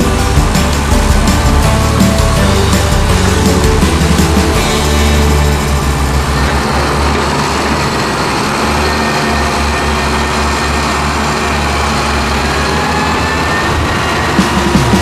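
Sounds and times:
diesel truck engine rumbling: 0.0s - 15.0s.

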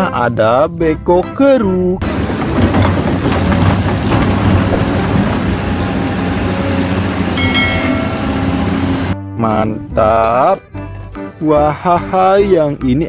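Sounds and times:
heavy diesel engine running: 2.0s - 9.2s
high whine: 7.4s - 9.2s.

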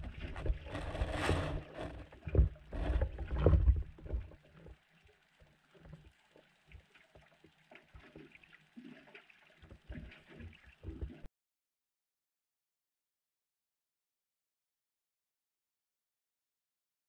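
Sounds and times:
muffled underwater water rumble: 0.0s - 11.3s.

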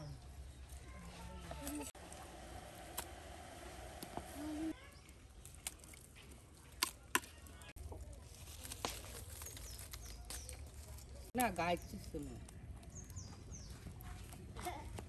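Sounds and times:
birds calling faintly: 8.9s - 14.8s.

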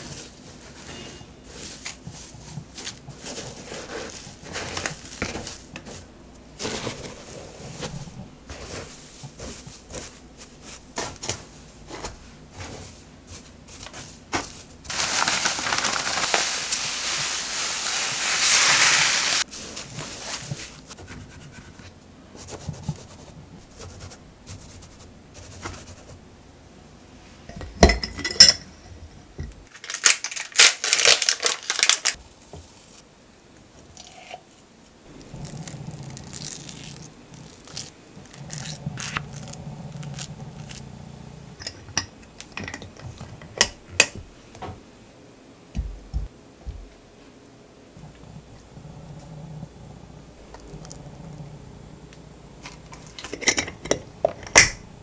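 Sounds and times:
hands digging through sawdust: 14.9s - 20.8s
low hum: 47.9s - 55.0s.

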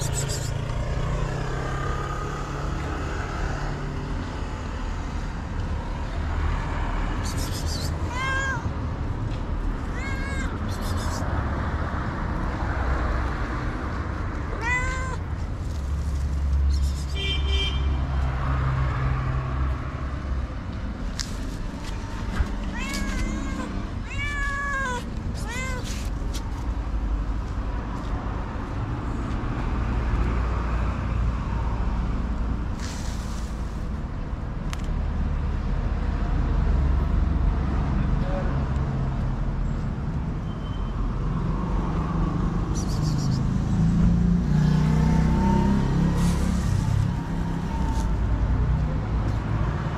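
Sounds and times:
cat meowing: 7.6s - 8.8s, 9.7s - 11.2s, 14.3s - 15.4s, 22.5s - 26.1s.

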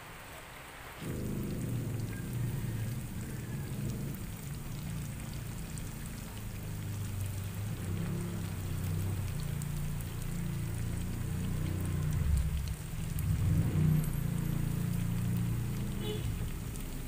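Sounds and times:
low steady hum: 1.0s - 17.0s
tofu sizzling in oil: 1.7s - 17.0s.

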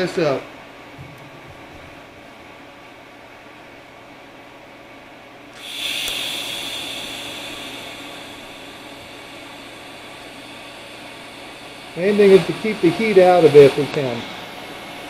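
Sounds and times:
steady background hum: 0.0s - 15.0s
welding arc hiss: 5.5s - 15.0s.

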